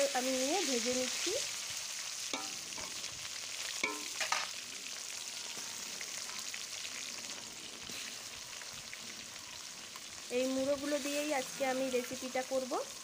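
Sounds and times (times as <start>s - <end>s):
fish sizzling in hot oil: 0.0s - 13.0s
spatula clinking and scraping pan: 2.3s - 3.1s, 3.7s - 4.5s.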